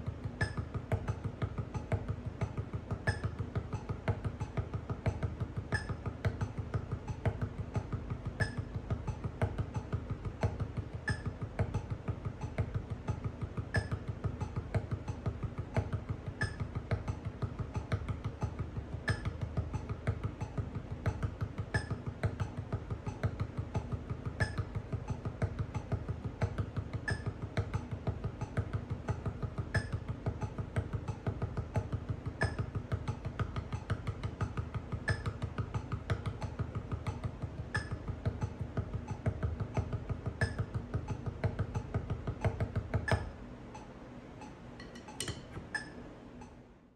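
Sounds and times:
drumsticks tapping a practice pad: 0.0s - 46.6s.

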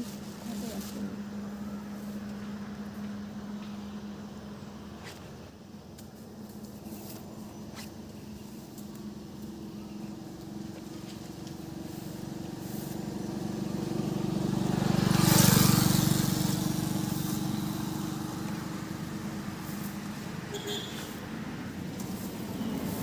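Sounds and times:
vehicle passing on road: 0.0s - 23.0s.

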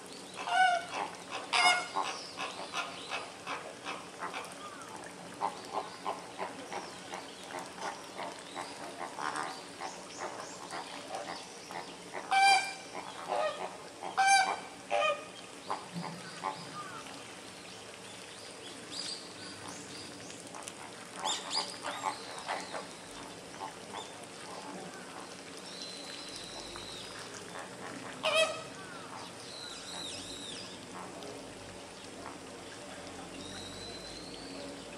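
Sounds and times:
flamingos calling: 0.4s - 4.8s, 12.1s - 17.0s, 27.1s - 31.1s.

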